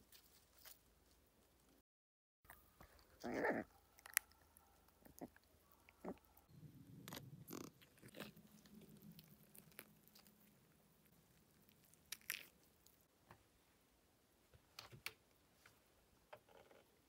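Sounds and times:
puppy gnawing and chewing: 2.5 - 13.1.

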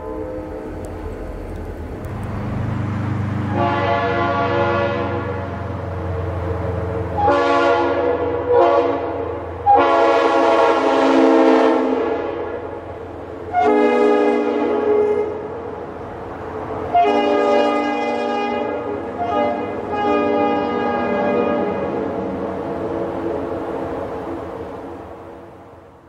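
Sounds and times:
low train rumble: 0.0 - 26.0
train air horn blasts: 3.4 - 5.5, 7.2 - 12.8, 13.5 - 15.5, 16.9 - 22.1.

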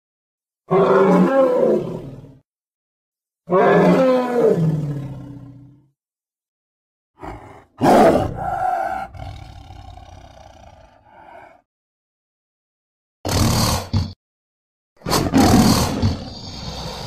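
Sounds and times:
creature growling roar: 0.7 - 2.4, 3.5 - 5.8, 7.2 - 11.6, 15.1 - 17.0.

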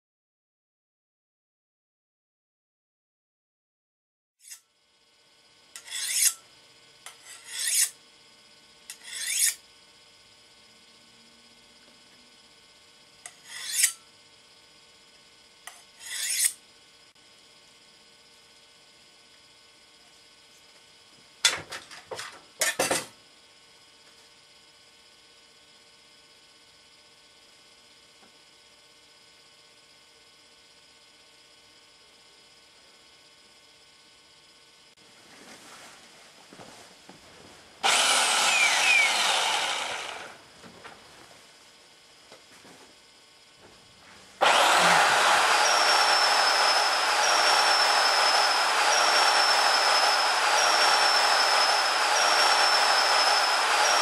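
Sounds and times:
short rasping scrapes: 5.8 - 6.4, 7.2 - 7.9, 8.9 - 9.6, 13.4 - 14.0, 16.0 - 16.6.

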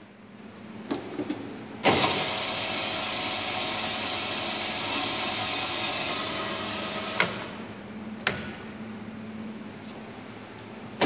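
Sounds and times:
band saw running with whine: 1.8 - 7.5.

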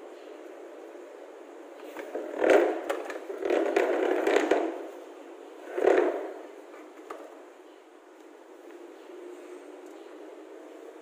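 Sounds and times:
telephone handset scraping and knocking: 2.0 - 4.8, 5.7 - 6.3.

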